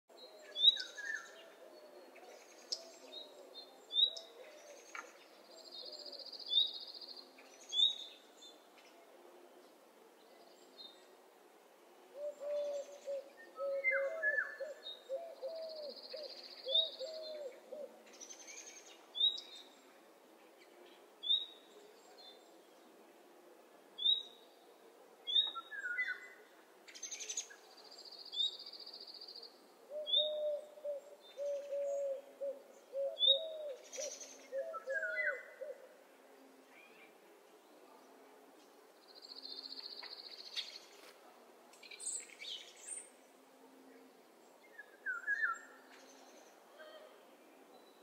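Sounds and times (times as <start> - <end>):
lower wavering bird calls: 12.2 - 18.6, 29.9 - 35.9, 44.7 - 45.9.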